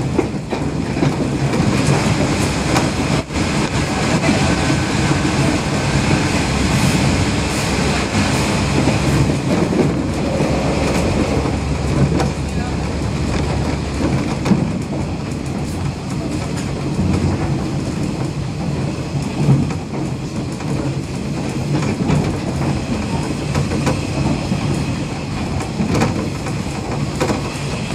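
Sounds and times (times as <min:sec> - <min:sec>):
train wheels rumbling on rail: 0:00.0 - 0:27.9.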